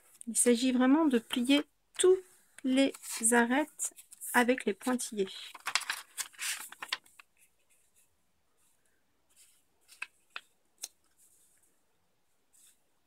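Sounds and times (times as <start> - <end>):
paper rustling: 2.8 - 11.6.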